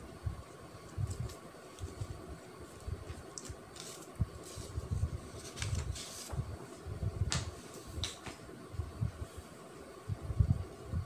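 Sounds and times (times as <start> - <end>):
paper rustling swishes: 0.8 - 6.7.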